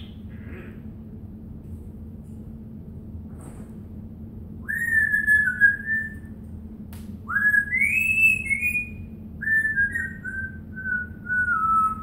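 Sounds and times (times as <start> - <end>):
parrot whistling: 4.6 - 6.3, 7.3 - 12.0.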